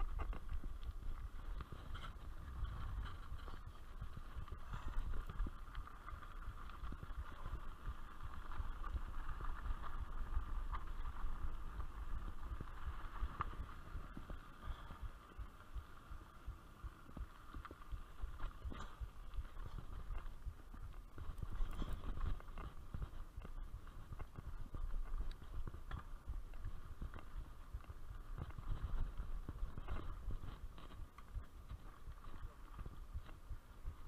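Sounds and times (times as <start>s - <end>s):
bike rolling on dirt trail: 0.0s - 34.0s.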